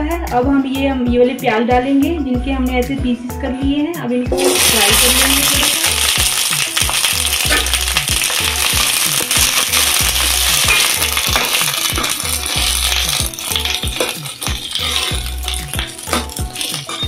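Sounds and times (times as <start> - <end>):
background music with steady beat: 0.0 - 17.0
onions sizzling in hot oil: 4.3 - 17.0
steel spatula stirring: 4.4 - 17.0.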